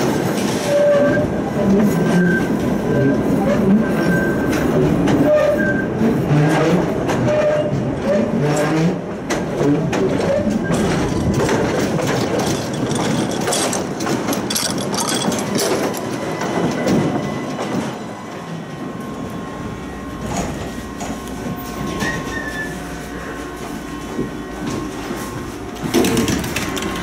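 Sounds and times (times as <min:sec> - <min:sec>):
tram wheels clattering on rails: 0:00.0 - 0:27.0
wheels squealing: 0:21.5 - 0:23.3.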